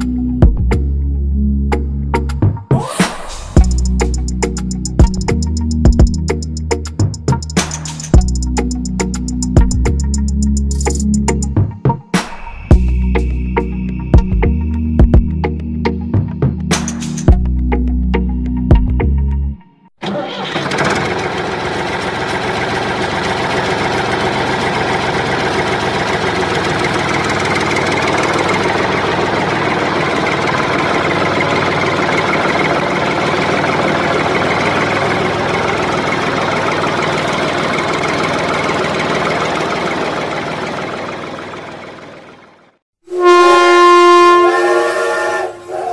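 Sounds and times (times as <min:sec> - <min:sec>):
engine running steadily: 0:03.1 - 0:11.6, 0:20.0 - 0:42.8.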